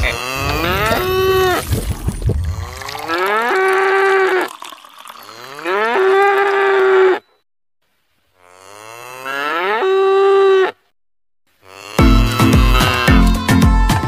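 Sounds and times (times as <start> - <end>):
cow mooing: 0.0 - 1.6, 5.3 - 7.2, 8.4 - 10.8, 11.6 - 13.3.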